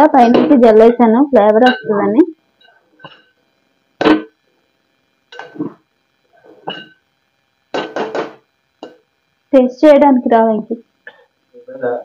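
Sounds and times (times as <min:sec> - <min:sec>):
metal spoon knocking metal pot: 0:01.6 - 0:02.2, 0:06.7 - 0:07.0, 0:07.7 - 0:09.0.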